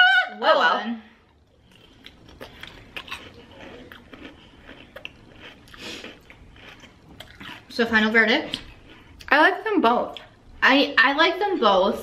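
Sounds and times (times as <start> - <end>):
crunching and chewing cereal: 1.4 - 9.4.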